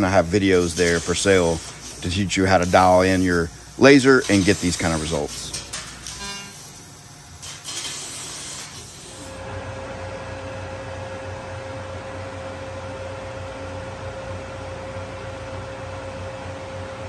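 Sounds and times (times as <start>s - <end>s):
laser cutting machine humming: 0.0s - 17.0s
hiss: 0.2s - 9.4s.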